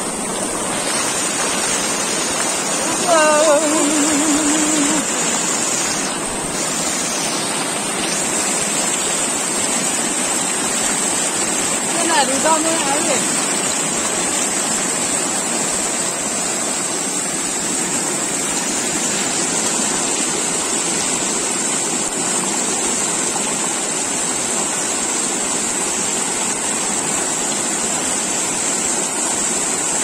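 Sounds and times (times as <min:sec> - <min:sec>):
river water rushing: 0:00.0 - 0:30.0.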